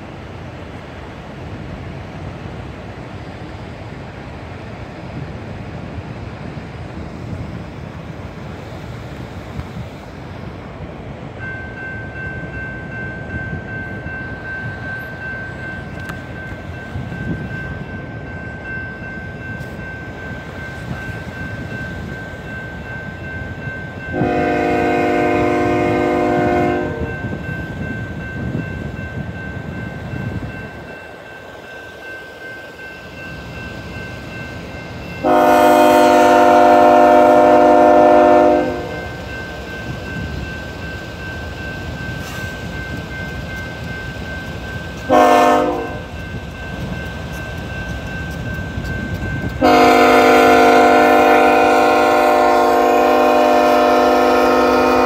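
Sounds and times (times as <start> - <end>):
level-crossing warning bell ringing: 11.3 - 55.0
locomotive air horn blasts: 24.1 - 27.1, 35.2 - 39.0, 45.1 - 46.0, 49.6 - 55.0.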